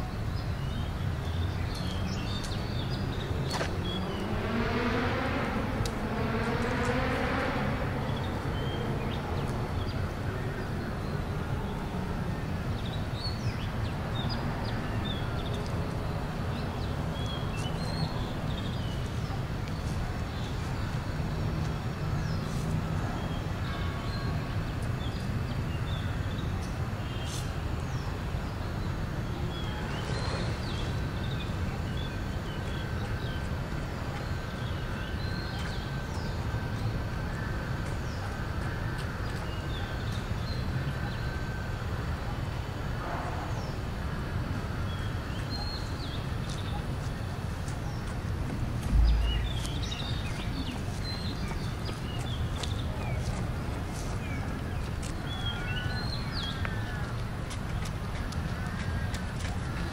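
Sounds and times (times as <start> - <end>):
low rumble of city traffic: 0.0 - 59.9
small birds chirping: 44.9 - 59.9.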